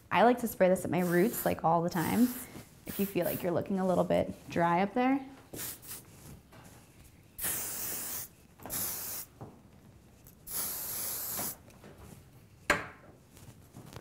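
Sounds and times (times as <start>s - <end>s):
aerosol spray hissing: 1.0s - 3.5s, 5.6s - 6.1s, 7.4s - 9.3s, 10.5s - 11.6s.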